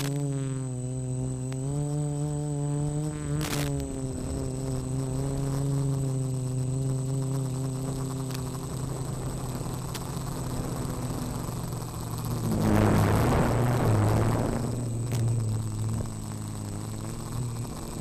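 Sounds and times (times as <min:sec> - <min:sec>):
brief crackle: 0:00.0 - 0:00.2, 0:03.4 - 0:04.0, 0:11.6 - 0:18.0
drone propellers buzzing: 0:00.0 - 0:18.0
thin high whine: 0:00.0 - 0:18.0.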